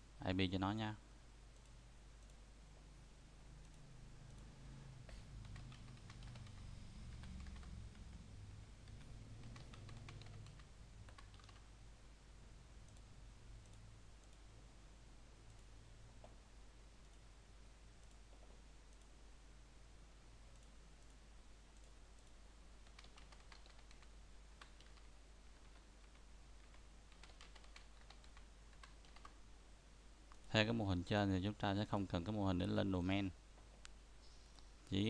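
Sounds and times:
faint low hum: 0.0 - 35.0
computer keyboard typing: 5.4 - 11.7, 22.8 - 29.4.

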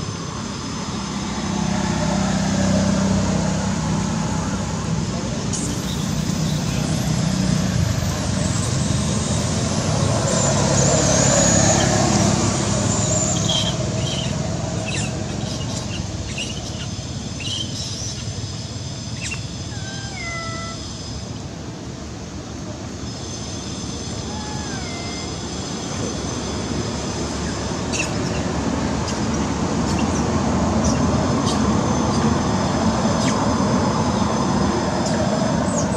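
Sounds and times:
vehicle passing by: 0.0 - 18.2
high sliding calls: 19.1 - 21.4, 23.2 - 26.5.

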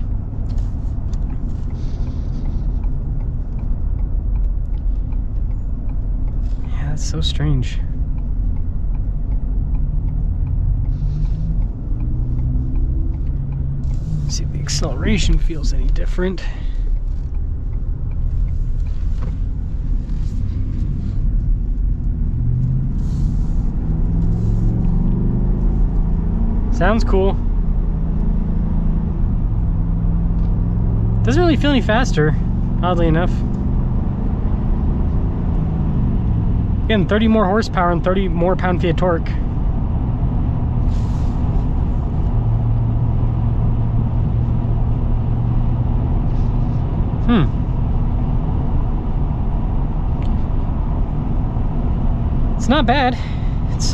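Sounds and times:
road and tyre noise: 0.0 - 53.9
steady low hum: 0.0 - 53.9
truck engine revving up: 22.0 - 53.9.

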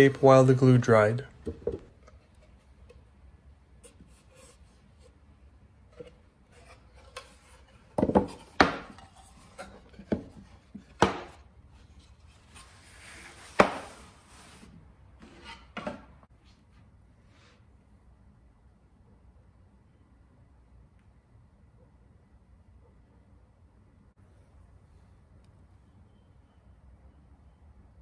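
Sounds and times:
plywood knocking on workbench: 1.4 - 1.9
boards scraping over bench: 12.0 - 16.3.

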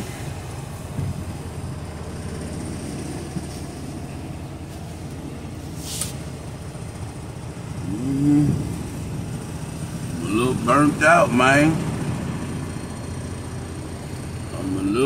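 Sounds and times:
diesel truck engine rumbling: 0.0 - 15.0
short hiss: 5.8 - 6.2.

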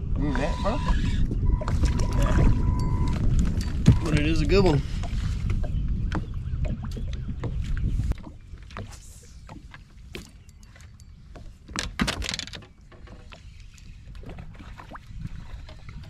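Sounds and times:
faint water noise: 0.0 - 16.0
wind rumble on microphone: 0.0 - 16.0.

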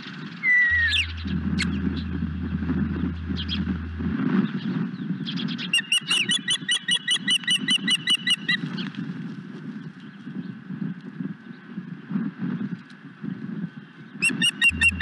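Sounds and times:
low background noise: 0.7 - 4.3.

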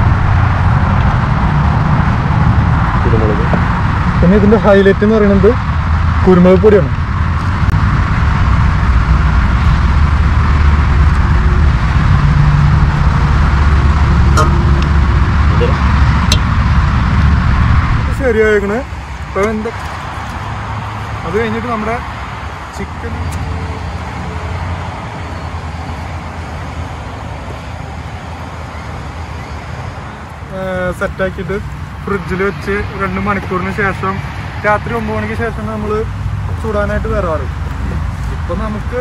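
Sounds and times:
low rumble: 0.0 - 4.6, 5.7 - 19.4.

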